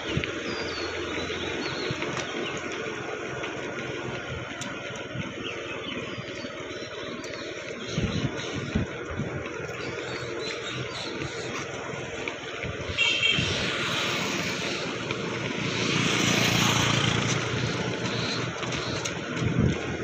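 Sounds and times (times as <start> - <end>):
motorbike passing: 0.0 - 7.7, 8.7 - 20.0
vehicle engine and rushing air: 12.7 - 19.7.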